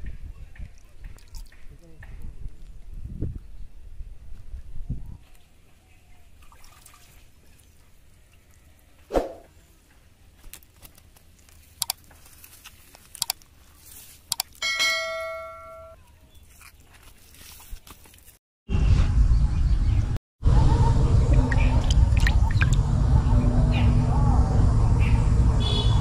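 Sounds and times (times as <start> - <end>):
sharp clicks: 11.8 - 12.0, 13.2 - 13.4, 14.3 - 14.6
bell chime: 14.6 - 16.0.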